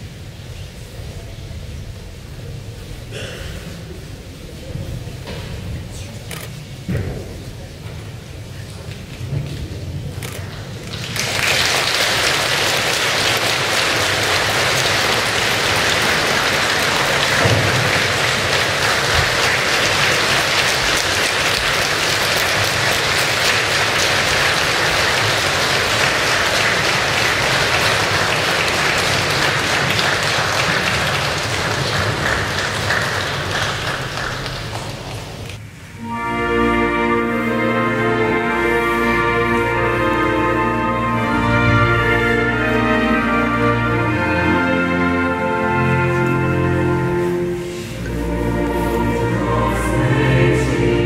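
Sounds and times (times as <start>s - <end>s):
audience applauding: 10.2s - 35.6s.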